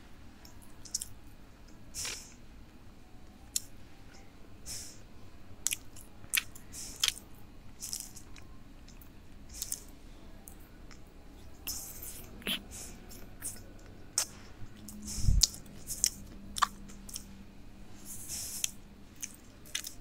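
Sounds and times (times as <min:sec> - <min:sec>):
person chewing with wet smacks: 0:00.6 - 0:01.1, 0:05.6 - 0:07.2, 0:07.8 - 0:09.9, 0:10.5 - 0:17.3, 0:18.5 - 0:20.0.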